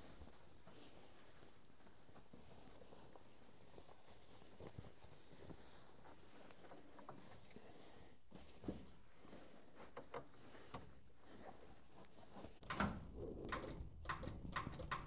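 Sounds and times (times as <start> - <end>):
faint rustling: 0.0 - 12.6
sharp clicks and knocks: 12.6 - 15.0.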